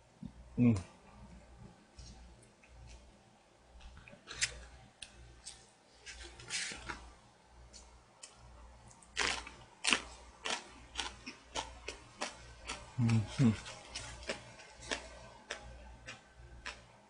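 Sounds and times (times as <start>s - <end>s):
chewing: 9.2s - 16.8s.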